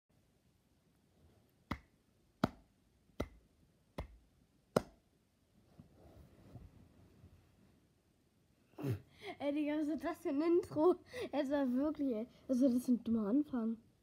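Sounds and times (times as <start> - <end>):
slow hand claps: 1.7 - 2.6, 3.2 - 3.4, 4.0 - 4.2, 4.8 - 5.0.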